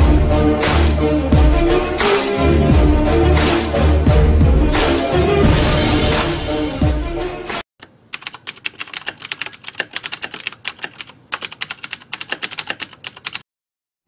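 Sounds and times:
music: 0.0s - 7.6s
rapid keyboard clicks: 7.8s - 13.4s.

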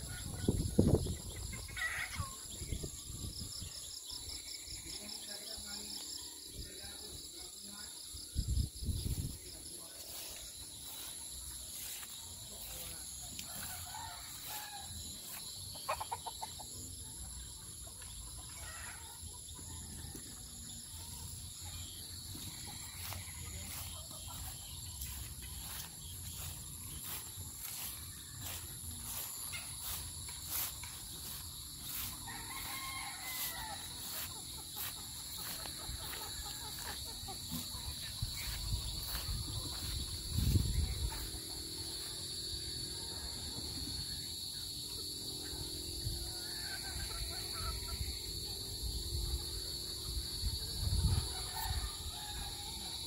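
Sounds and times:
rooster crowing: 13.4s - 15.4s, 31.3s - 37.0s, 51.1s - 53.0s
hens clucking: 15.3s - 17.0s, 22.3s - 41.9s.

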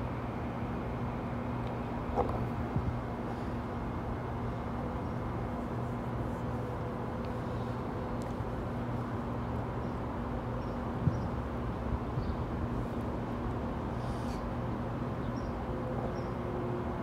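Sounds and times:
electric train hum and rumble: 0.0s - 17.0s.

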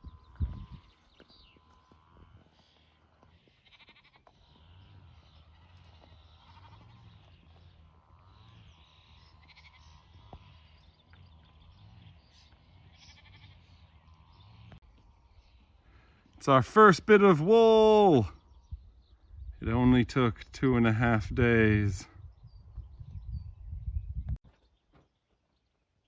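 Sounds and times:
sheep bleating faintly: 3.6s - 4.8s, 5.5s - 7.2s, 13.0s - 13.6s.

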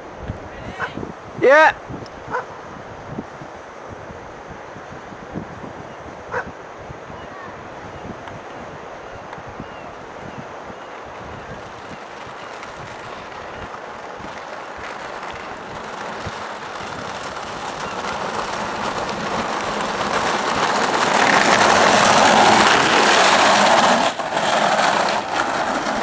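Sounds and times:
go-kart wheels rolling on concrete: 7.4s - 26.0s.

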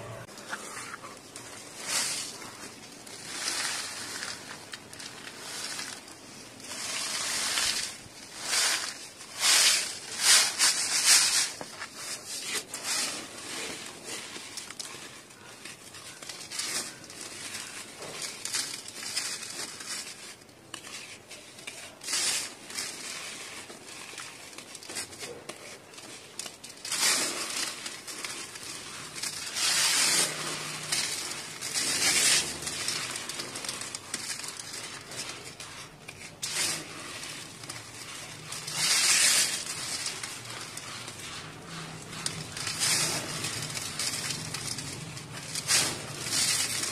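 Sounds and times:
powder hissing through mesh: 25.6s - 46.9s.

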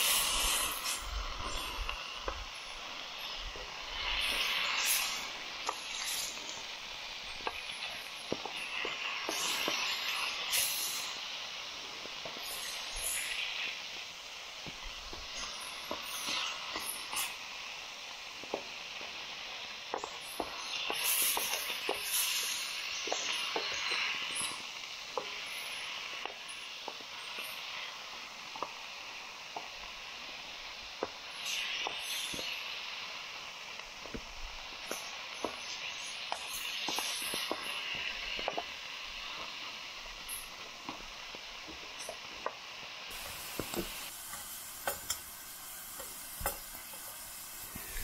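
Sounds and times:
meat sizzling in a frying pan: 0.0s - 48.0s
spatula stirring in pan: 15.2s - 17.4s, 43.1s - 48.0s.

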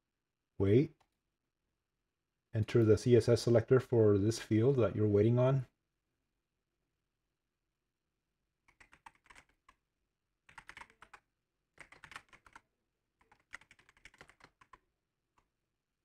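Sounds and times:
keyboard typing: 8.7s - 9.8s, 10.5s - 11.2s, 11.8s - 12.6s, 13.2s - 14.8s.

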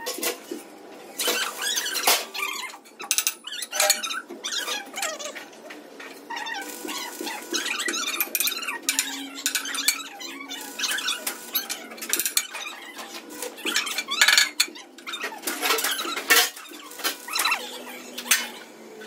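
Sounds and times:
metal squealing: 6.1s - 18.7s.

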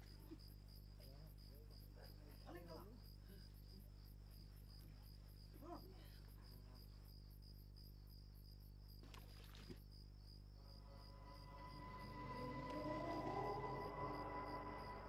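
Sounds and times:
faint crickets chirping: 0.0s - 15.0s
low steady hum: 10.4s - 15.0s.

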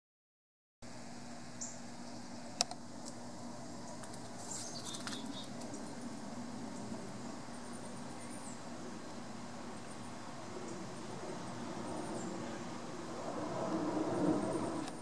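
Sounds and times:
wind hiss: 1.0s - 15.0s
small birds chirping: 1.6s - 2.6s, 3.6s - 12.8s.

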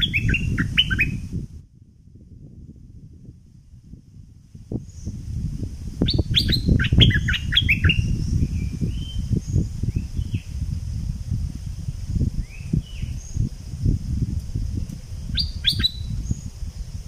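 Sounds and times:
bird whistled song: 0.0s - 1.3s, 6.0s - 10.5s, 12.4s - 13.4s, 15.3s - 16.5s.

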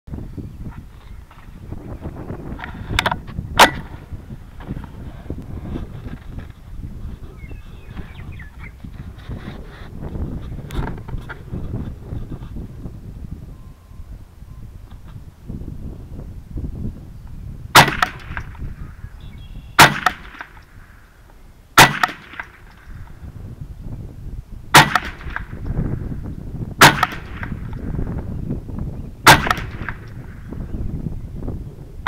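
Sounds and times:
rifle shots: 3.6s - 4.1s, 17.8s - 18.5s, 19.8s - 20.6s, 21.8s - 22.7s, 24.7s - 25.6s, 26.8s - 27.7s, 29.2s - 30.3s.

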